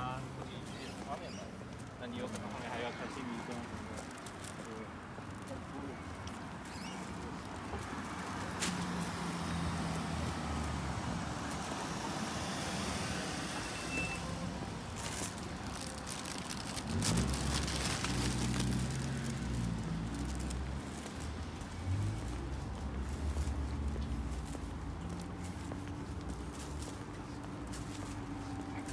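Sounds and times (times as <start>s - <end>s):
road noise hiss: 6.8s - 28.9s.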